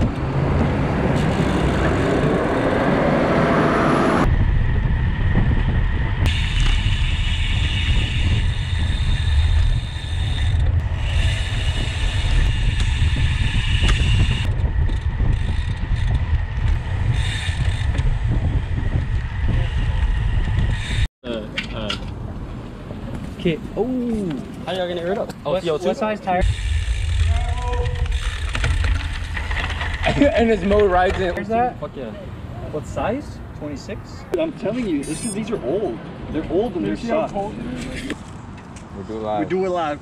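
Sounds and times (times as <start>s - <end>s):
wind buffeting microphone: 0.0s - 21.1s, 26.4s - 31.4s
bicycle road noise: 0.0s - 40.0s.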